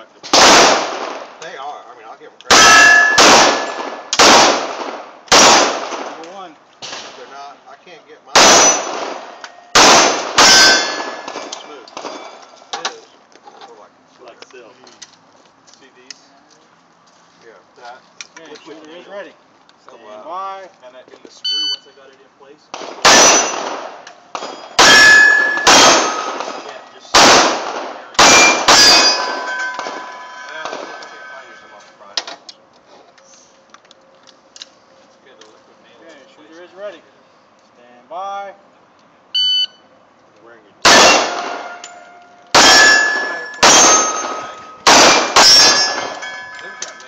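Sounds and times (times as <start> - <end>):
pistol shots: 0.2 - 1.4, 2.5 - 6.2, 8.4 - 12.2, 22.7 - 31.4, 40.8 - 41.8, 42.5 - 46.8
steel targets ringing: 2.5 - 3.8, 8.5 - 12.5, 23.1 - 23.6, 24.3 - 26.9, 28.0 - 32.2, 40.9 - 47.0.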